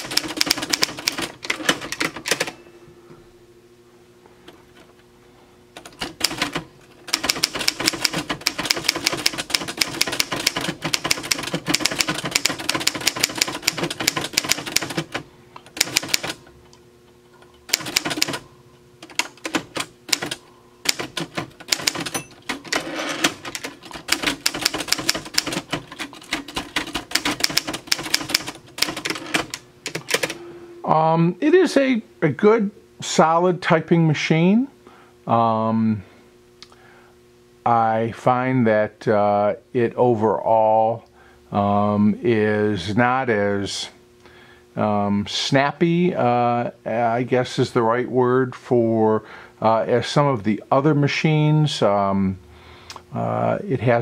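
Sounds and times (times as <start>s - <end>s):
manual typewriter typing: 0.0s - 2.6s, 5.8s - 16.4s, 17.7s - 18.4s, 19.0s - 30.4s.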